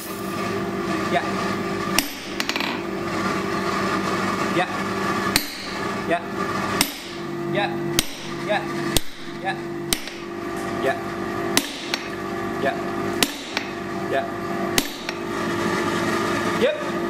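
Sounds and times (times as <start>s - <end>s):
steady hum: 0.0s - 17.0s
hammer striking steel on anvil: 1.9s - 2.8s, 5.3s - 5.9s, 6.8s - 7.3s, 7.9s - 10.3s, 11.5s - 12.2s, 13.1s - 13.8s, 14.7s - 15.3s.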